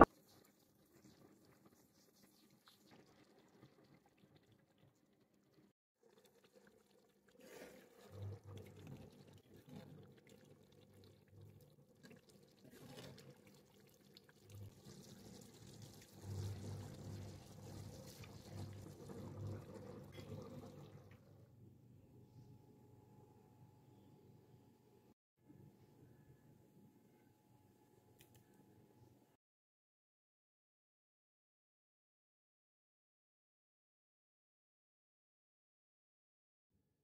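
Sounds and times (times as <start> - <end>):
stirring sauce in a metal pot: 12.0 - 20.8.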